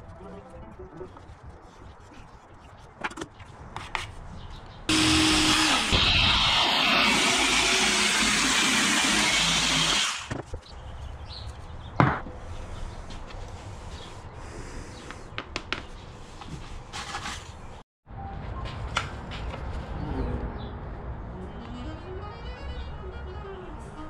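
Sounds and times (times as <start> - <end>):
power tool cutting wood panel: 4.9 - 10.3.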